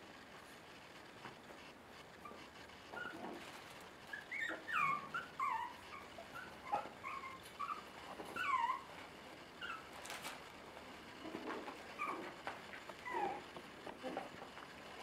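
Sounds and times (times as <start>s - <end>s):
puppies whimpering and yipping: 4.1s - 9.0s, 9.6s - 10.0s, 11.9s - 12.4s, 13.0s - 13.5s.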